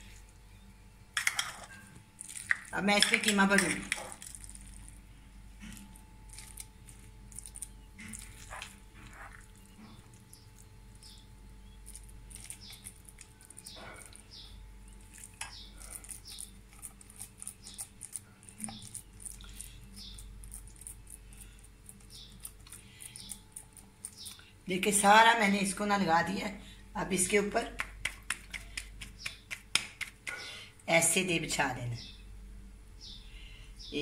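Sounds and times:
low steady hum: 0.0s - 34.0s
spoon scraping steel bowl: 1.2s - 4.6s
hands patting dough: 27.6s - 30.6s.

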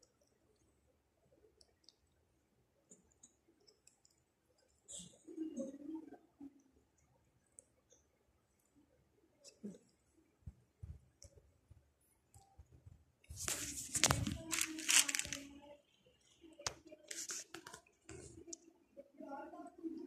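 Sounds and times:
faint clicks: 2.9s - 5.1s
cats scuffling and rustling: 12.7s - 15.4s.

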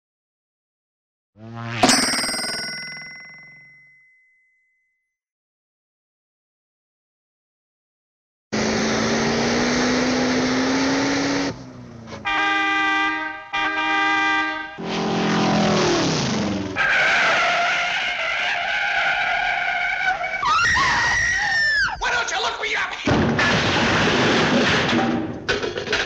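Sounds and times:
buzz with rising tone: 1.4s - 3.0s
wobbling warble: 1.6s - 3.8s.

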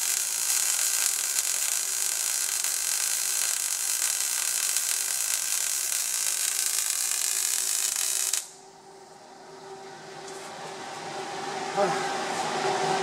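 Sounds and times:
welding arc crackling and hissing: 0.0s - 8.6s
faint steady hum: 0.0s - 13.0s.

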